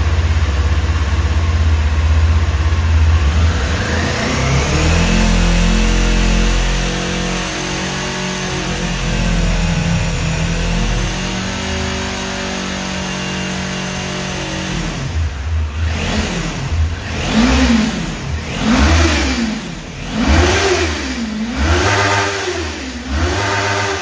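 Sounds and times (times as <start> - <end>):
motorcycle engine idling: 0.0 - 12.4
motorcycle engine revving: 0.0 - 24.0.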